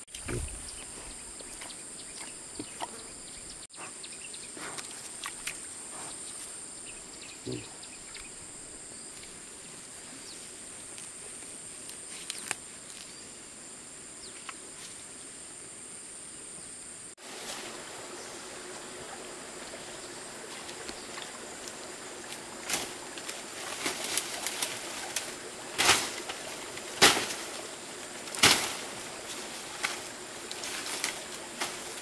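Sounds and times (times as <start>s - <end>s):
high insect drone: 0.2s - 32.0s
soft even hiss: 8.0s - 32.0s.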